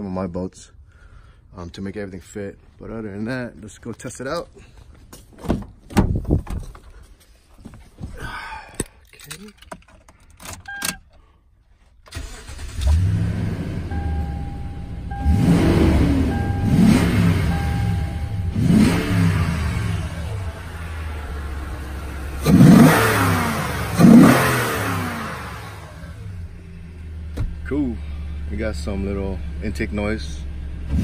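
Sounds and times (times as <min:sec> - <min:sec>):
engine starting and idling: 0:12.1 - 0:27.4
engine revving: 0:12.2 - 0:31.0
dashboard chime beeping: 0:13.9 - 0:19.6.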